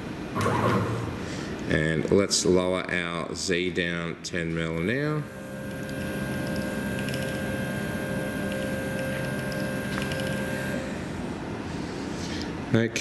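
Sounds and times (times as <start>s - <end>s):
stepper motors whining: 5.2s - 11.1s.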